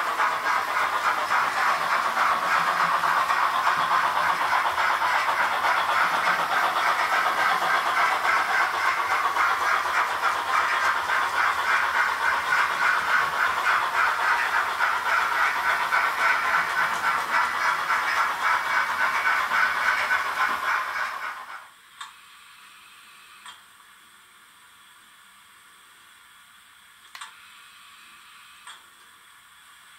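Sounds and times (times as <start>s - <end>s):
simulated steam chuffing with hiss: 0.0s - 29.9s
small clicks: 27.0s - 27.4s.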